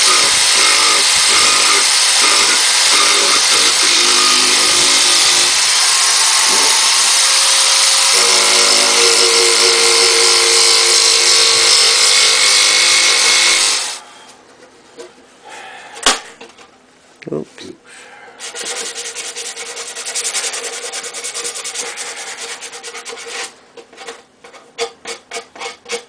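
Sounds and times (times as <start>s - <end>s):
electric drill sanding wood: 0.0s - 14.0s.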